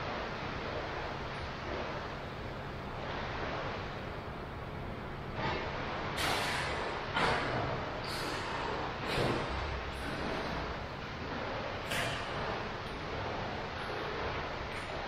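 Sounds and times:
pool water sloshing: 0.0 - 15.0
loud water splashes: 5.3 - 15.0.

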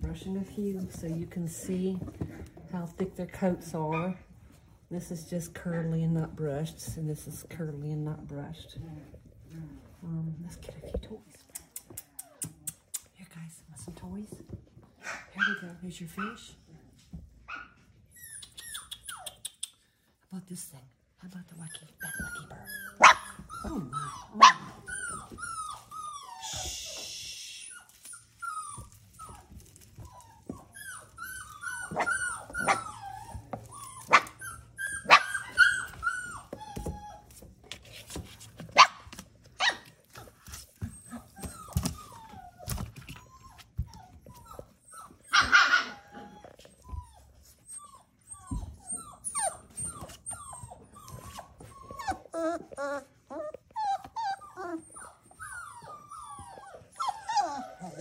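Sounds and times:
puppies squealing and yipping: 17.5 - 19.5, 21.8 - 58.0
puppies growling: 21.6 - 38.7, 39.8 - 58.0.

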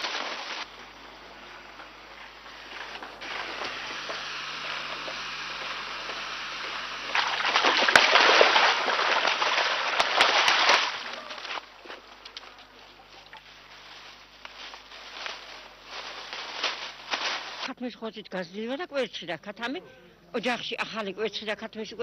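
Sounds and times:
liquid splashing into water: 6.6 - 11.6.

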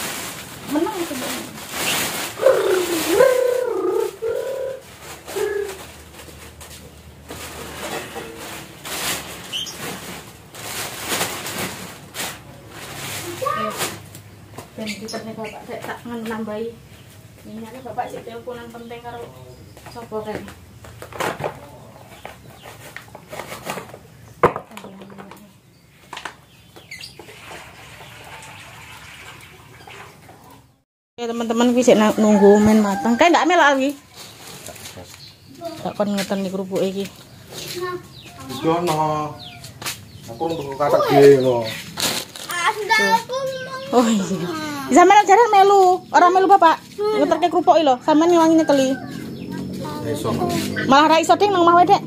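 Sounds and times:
plastic bags rustling: 0.0 - 14.4, 31.6 - 48.9
dove cooing: 2.3 - 6.1.

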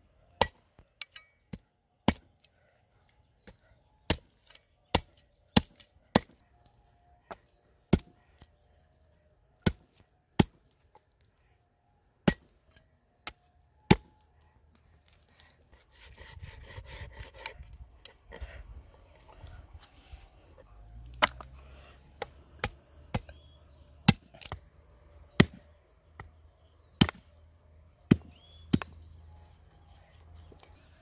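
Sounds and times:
cleaver chopping on wooden block: 27.0 - 27.2.

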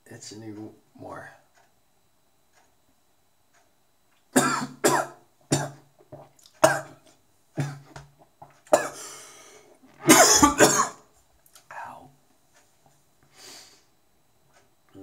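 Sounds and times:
man coughing: 4.4 - 5.8, 6.6 - 7.0, 7.6 - 8.0, 8.7 - 9.1, 10.0 - 11.0.

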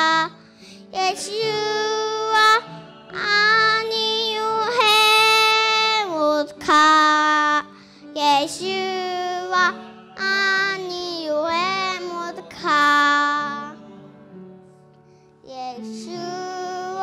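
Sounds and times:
girl singing into a microphone: 0.0 - 0.4, 1.0 - 2.6, 3.2 - 13.8, 15.5 - 17.0
soft musical accompaniment: 0.0 - 17.0.

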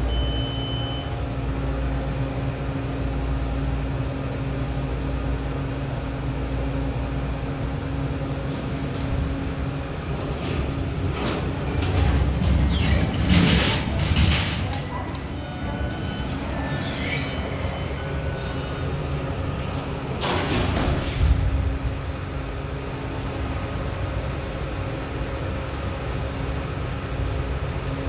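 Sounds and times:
elevator hum: 0.0 - 28.0
short high beep: 0.1 - 1.2
elevator doors sliding open: 8.4 - 21.9.

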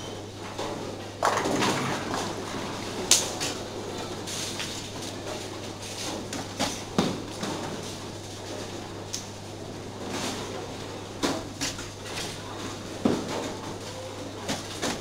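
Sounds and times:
bowling balls and pins clattering: 0.0 - 15.0.

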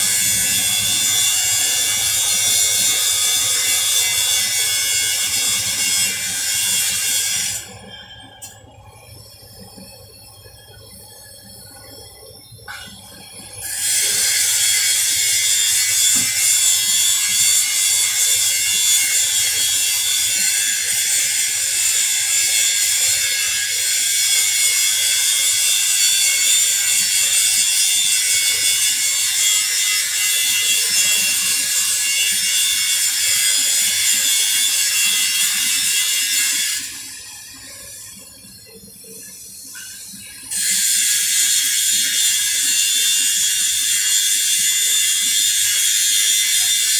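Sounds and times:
arc welding crackling: 0.0 - 7.8, 13.6 - 38.1.

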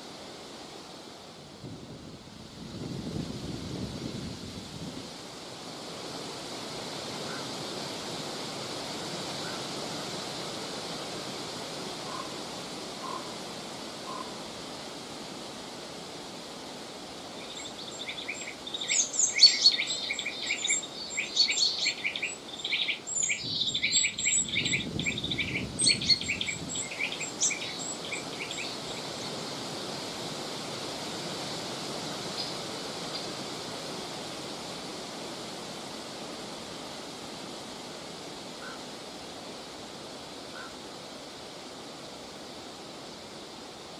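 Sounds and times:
wind in trees: 0.0 - 43.9
high bird chirps: 17.4 - 28.8.

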